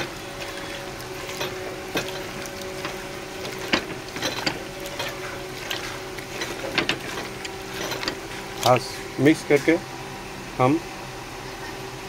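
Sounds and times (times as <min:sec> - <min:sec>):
hand squelching through wet meat: 0:00.0 - 0:08.7.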